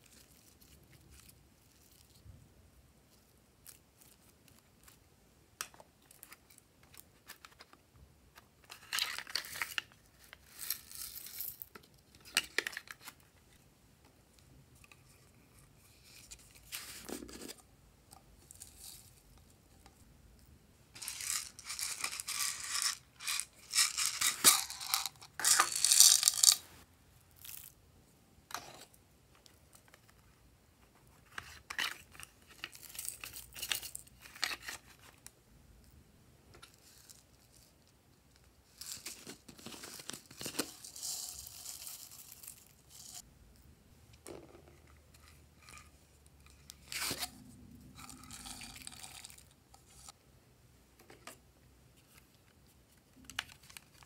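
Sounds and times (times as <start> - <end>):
beads and sequins rattling: 21.0 - 26.7.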